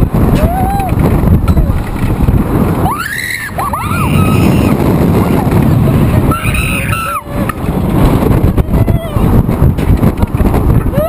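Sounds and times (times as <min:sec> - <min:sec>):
wind buffeting microphone: 0:00.0 - 0:11.0
children screaming: 0:02.8 - 0:04.8, 0:06.2 - 0:07.3.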